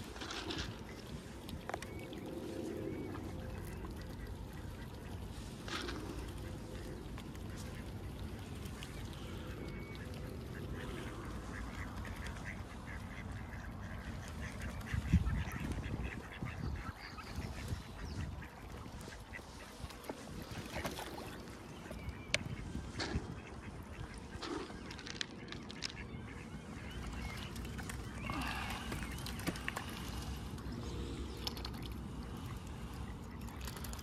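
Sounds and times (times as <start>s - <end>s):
ducks quacking: 9.7s - 21.3s.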